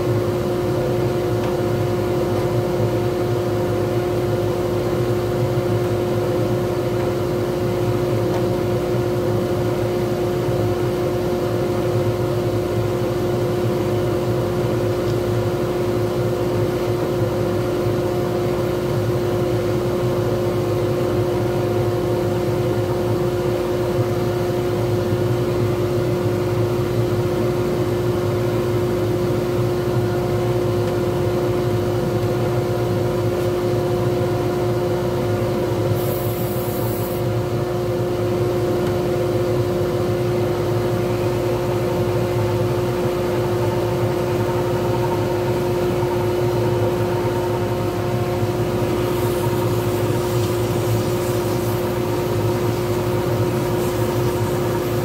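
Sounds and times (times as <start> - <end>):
wood lathe motor hum: 40.7 - 55.0
abrasive pad hissing: 41.0 - 55.0.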